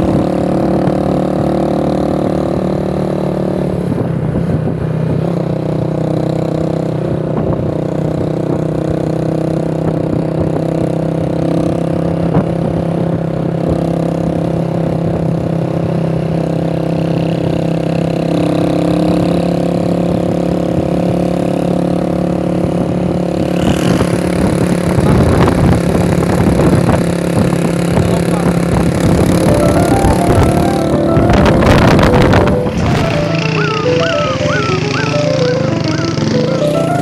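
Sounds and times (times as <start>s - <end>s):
motorcycle engine running: 0.0s - 37.0s
wind rumbling on microphone: 3.7s - 5.8s, 7.1s - 9.0s, 22.5s - 33.2s.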